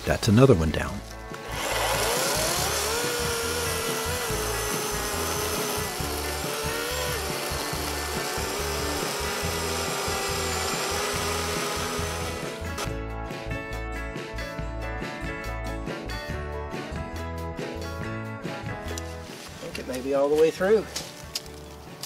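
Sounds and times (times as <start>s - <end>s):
electric chainsaw motor whine: 1.3s - 12.9s
chain rasping through wood: 1.4s - 12.9s.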